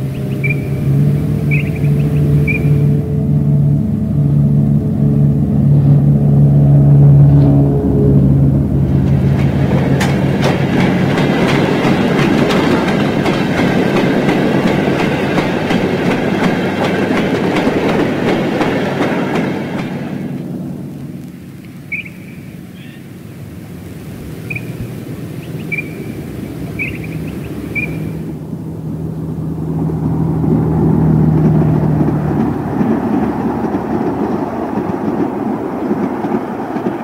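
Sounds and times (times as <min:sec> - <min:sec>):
diesel locomotive engine droning: 0:00.0 - 0:37.0
wagon wheels clicking over rail joints: 0:08.9 - 0:23.7, 0:30.9 - 0:37.0.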